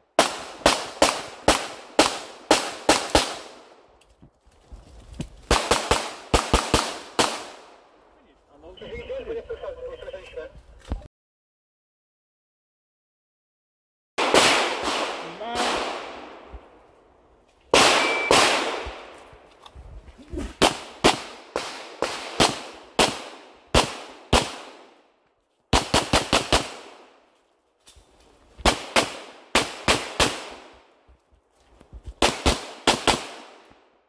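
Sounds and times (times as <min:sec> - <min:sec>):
handgun shots echoing: 0:17.8 - 0:19.0.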